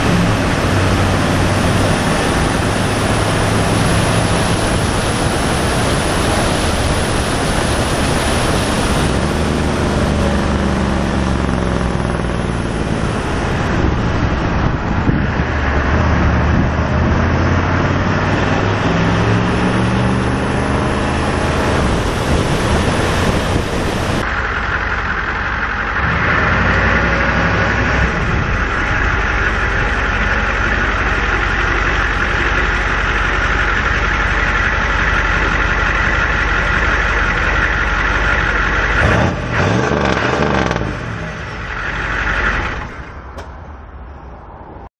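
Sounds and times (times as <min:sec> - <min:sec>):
diesel truck engine accelerating: 0:00.0 - 0:44.9.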